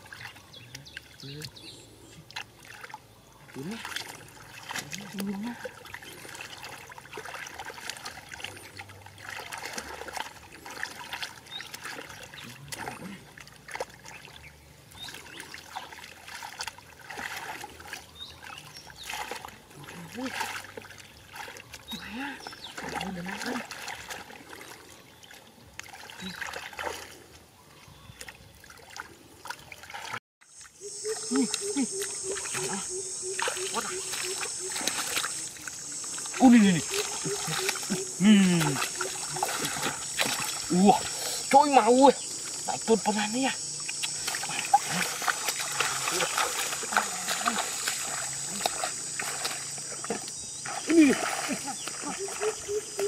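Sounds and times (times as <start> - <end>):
hands sloshing through muddy water: 0.0 - 53.0
water trickles and drips: 0.0 - 53.0.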